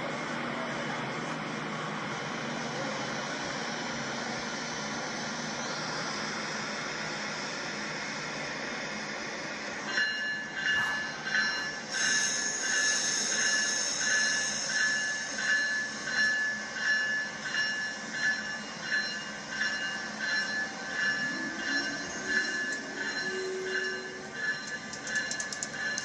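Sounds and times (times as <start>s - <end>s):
toy train motor whine: 11.9s - 16.6s.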